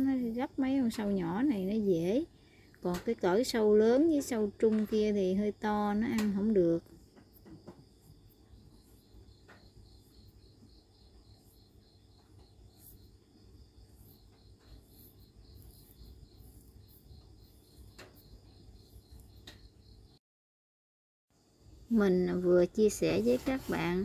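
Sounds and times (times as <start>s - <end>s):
faint cricket chirping: 0.0s - 20.2s, 21.4s - 24.0s.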